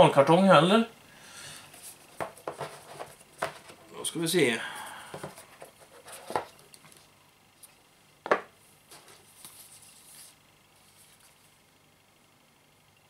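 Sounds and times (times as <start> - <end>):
knocks and taps on cardboard box: 2.2 - 2.8, 3.4 - 3.7
soft rustle: 8.8 - 11.7.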